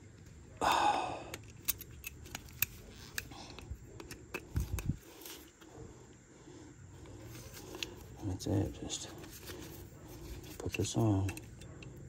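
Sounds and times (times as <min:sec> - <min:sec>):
pliers scraping metal: 0:01.3 - 0:05.6, 0:09.2 - 0:12.0
small metal clicks and clinks: 0:01.3 - 0:05.6, 0:10.4 - 0:12.0.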